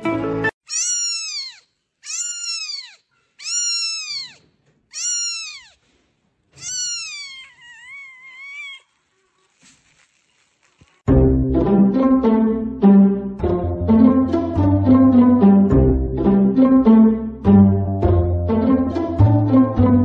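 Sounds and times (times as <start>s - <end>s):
kitten mewing: 0.7s - 5.8s, 6.6s - 8.9s.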